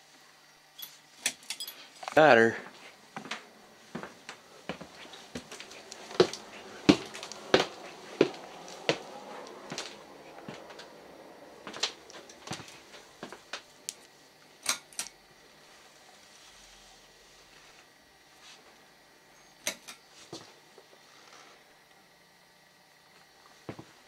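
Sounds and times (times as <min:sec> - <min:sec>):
footsteps on wooden stairs: 0:02.7 - 0:11.0, 0:11.6 - 0:13.6.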